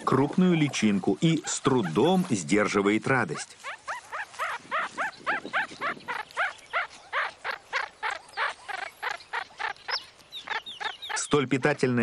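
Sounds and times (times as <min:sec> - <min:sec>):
meerkat pup chirping calls: 0:00.5 - 0:02.3, 0:03.2 - 0:11.8.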